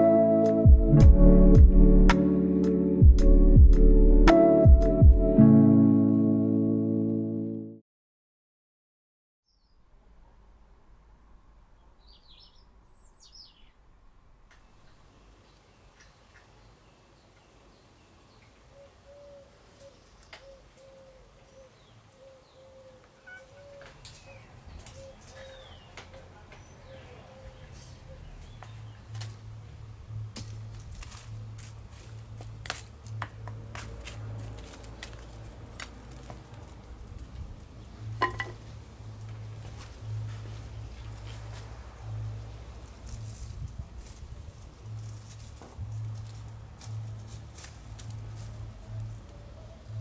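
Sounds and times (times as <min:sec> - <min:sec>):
low hum: 0:00.7 - 0:05.7
birds chirping: 0:14.6 - 0:29.3
dove cooing: 0:18.7 - 0:25.8.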